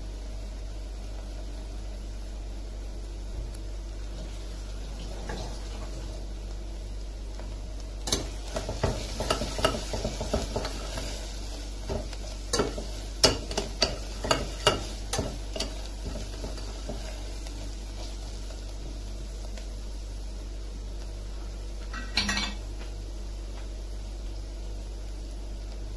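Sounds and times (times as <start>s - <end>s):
steady low hum: 0.0s - 25.9s
spoon stirring food frying in oil: 7.2s - 19.9s.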